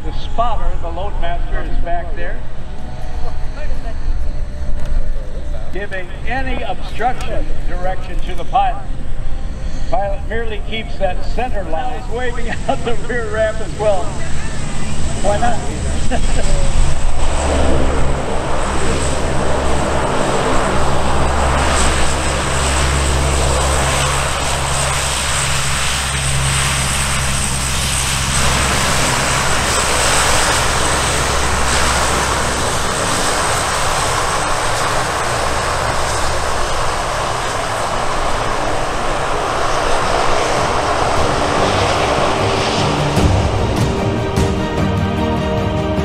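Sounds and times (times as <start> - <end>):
turboprop engines droning: 0.0 - 46.0.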